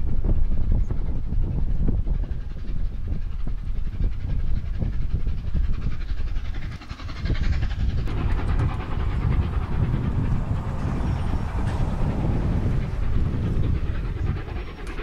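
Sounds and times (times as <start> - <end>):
steam locomotive chuffing: 0.1 - 15.0
train coaches rolling by: 6.0 - 15.0.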